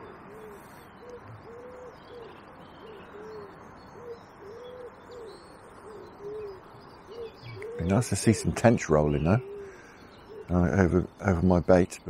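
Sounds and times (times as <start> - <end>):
faint small-bird chirps: 0.0 - 8.0
pigeon cooing: 0.0 - 10.9.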